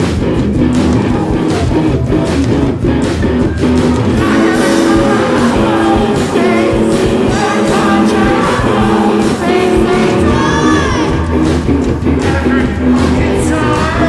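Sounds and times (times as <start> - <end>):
live rock band playing: 0.0 - 14.0
woman singing shouted vocals: 4.2 - 11.3.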